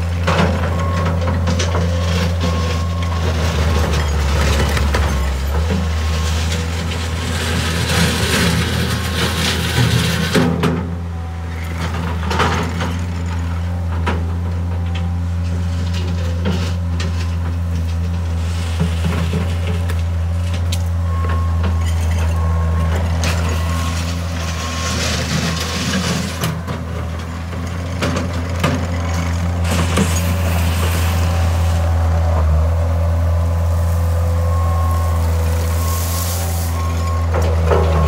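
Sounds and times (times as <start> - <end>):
diesel engine running: 0.0 - 38.0
bucket scraping gravel: 15.5 - 20.6, 21.5 - 32.7, 33.4 - 38.0
tracks crunching over gravel: 27.1 - 38.0.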